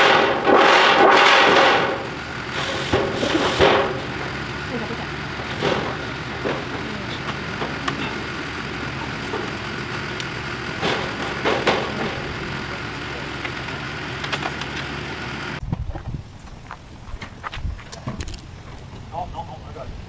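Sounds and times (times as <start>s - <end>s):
engine-like drone: 0.0s - 15.6s.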